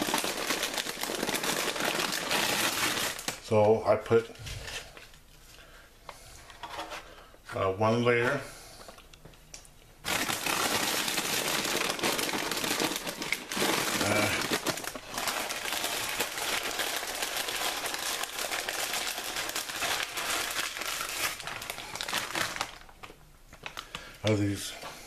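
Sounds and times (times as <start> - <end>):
plastic bag crinkling: 0.0 - 3.5, 10.0 - 24.6.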